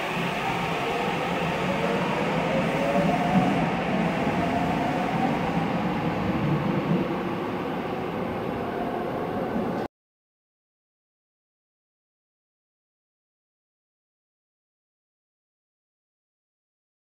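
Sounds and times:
subway train motor whine: 0:00.0 - 0:09.8
train running noise: 0:00.0 - 0:09.9.

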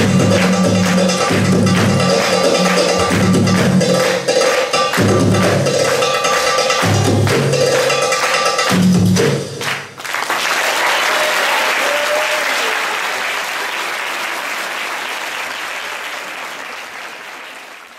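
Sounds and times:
audience applauding: 0:00.0 - 0:08.5, 0:09.6 - 0:17.9
belly dance music: 0:00.0 - 0:10.2.

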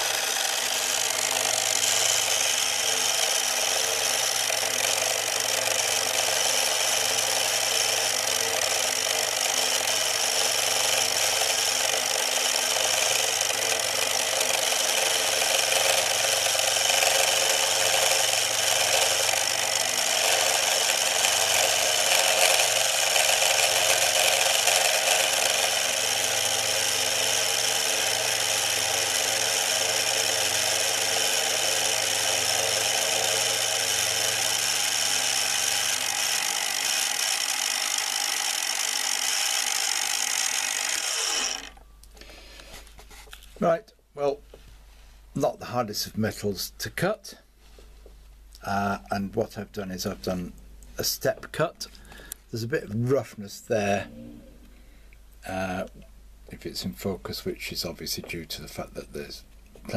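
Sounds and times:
end mill cutting metal: 0:00.0 - 0:41.8
milling machine motor whine: 0:00.0 - 0:41.8.

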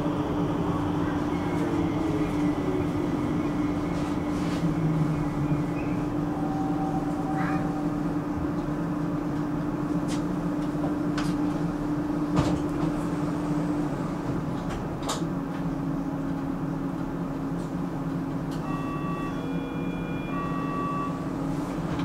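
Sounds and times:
metro train motor hum: 0:00.0 - 0:22.0
electronic signal tones: 0:18.6 - 0:21.2.

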